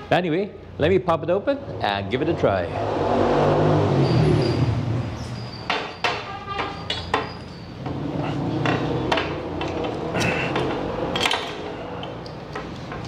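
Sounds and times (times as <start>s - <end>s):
handling clicks and knocks: 8.6s - 13.0s.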